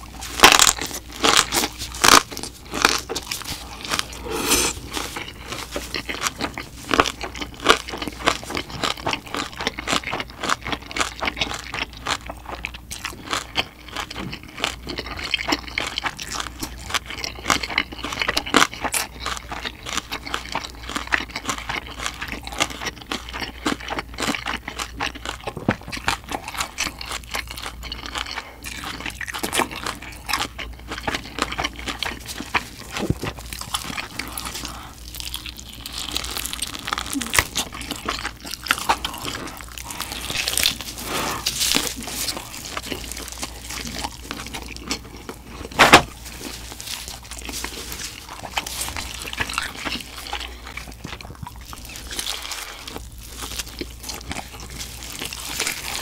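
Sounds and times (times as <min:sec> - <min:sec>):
chewing and crunching: 0:00.0 - 0:56.0.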